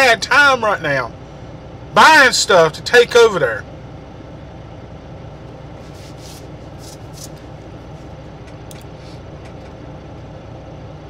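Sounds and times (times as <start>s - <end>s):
truck engine rumble in cab: 0.0s - 11.0s
faint short rustles: 5.8s - 8.2s.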